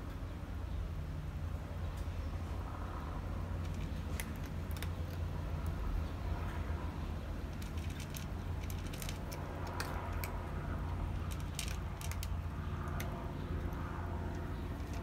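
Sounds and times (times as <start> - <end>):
steady low rumble: 0.0 - 15.0
cat crunching dry kibble: 3.2 - 15.0.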